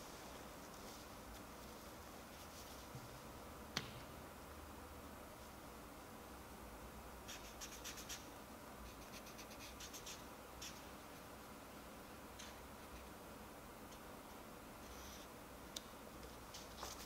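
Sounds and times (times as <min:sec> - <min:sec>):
marker scratching on ball: 0:07.3 - 0:08.3, 0:08.9 - 0:10.8.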